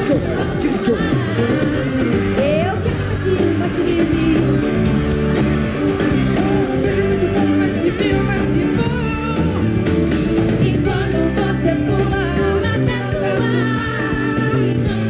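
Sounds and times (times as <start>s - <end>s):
lead vocal singing: 0.0s - 15.0s
live pop band: 0.0s - 15.0s.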